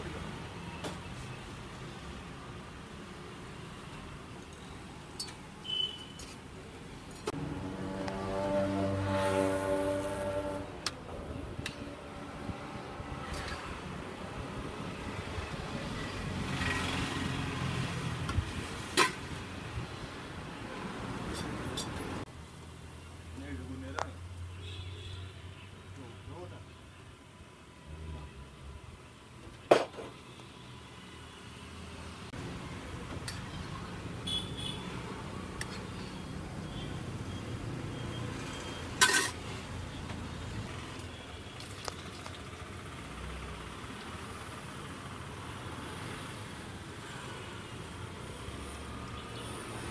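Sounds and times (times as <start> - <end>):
vehicle engine passing: 7.3 - 18.0.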